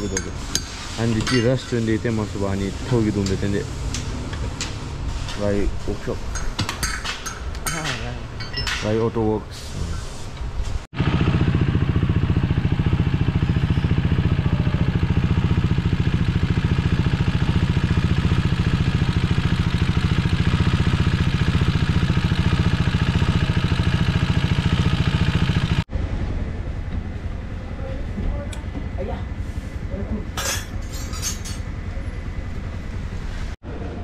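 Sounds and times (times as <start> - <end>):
motorcycle engine idling: 11.0 - 31.0, 31.6 - 33.1.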